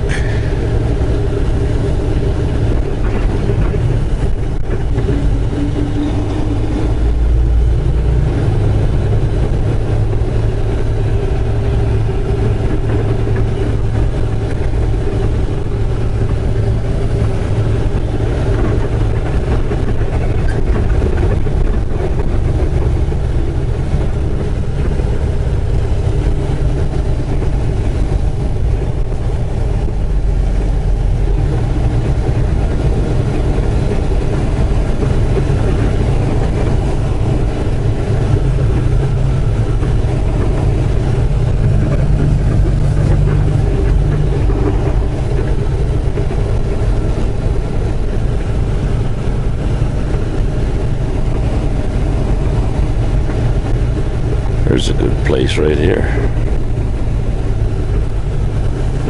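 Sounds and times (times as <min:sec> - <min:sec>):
truck diesel engine running: 0:00.0 - 0:59.0.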